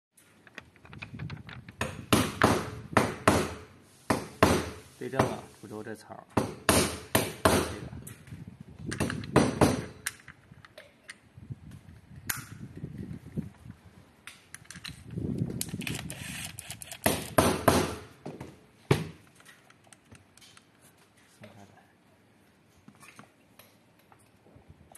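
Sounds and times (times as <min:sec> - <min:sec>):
plastic and metal parts knocking: 0:00.4 - 0:02.6.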